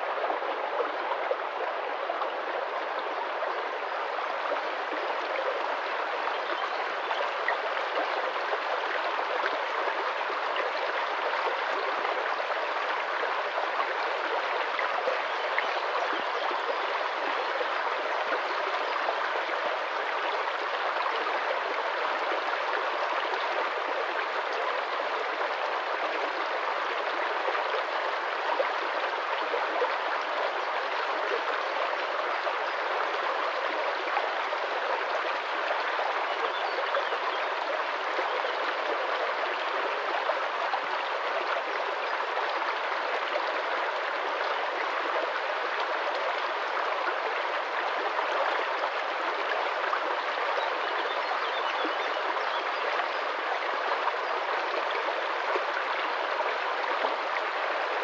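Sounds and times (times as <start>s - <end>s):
stream gurgling over stones: 0.0s - 58.0s.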